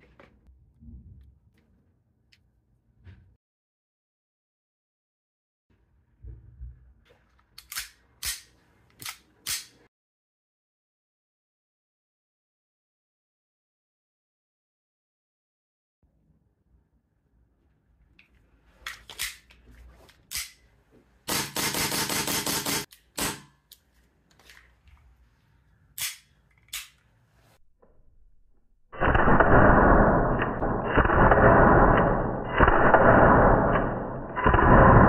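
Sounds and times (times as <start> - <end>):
airsoft pistol metallic clicks: 26.0 - 27.0.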